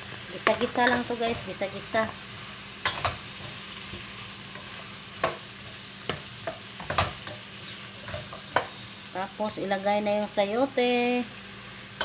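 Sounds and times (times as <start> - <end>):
vegetables sizzling in a wok: 0.0 - 12.0
spatula scraping and knocking pan: 2.8 - 8.8.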